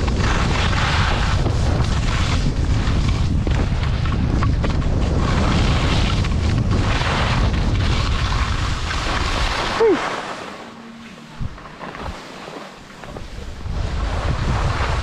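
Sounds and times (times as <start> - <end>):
skis carving on snow: 0.0 - 15.0
wind rumble on microphone: 0.0 - 15.0.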